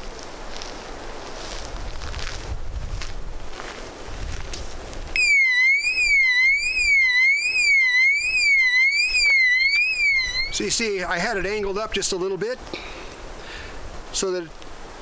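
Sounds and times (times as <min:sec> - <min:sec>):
rustling: 0:00.0 - 0:05.1
faint wind: 0:00.0 - 0:15.0
electronic alarm siren wailing: 0:05.2 - 0:10.6.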